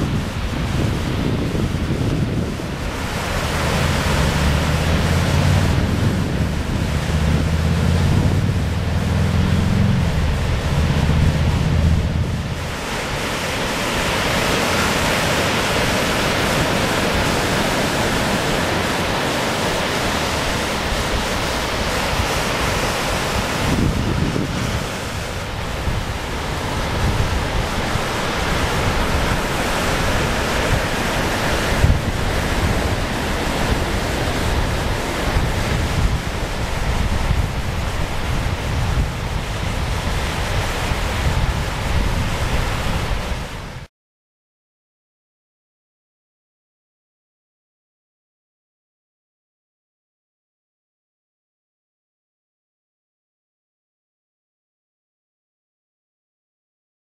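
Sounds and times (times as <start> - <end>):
ocean surf breaking on shore: 0.0 - 43.9
wind buffeting microphone: 0.0 - 43.9.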